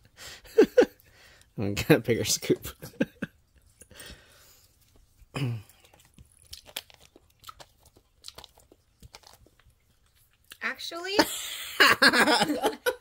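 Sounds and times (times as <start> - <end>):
mouth clicks and lip smacks: 5.7 - 10.6.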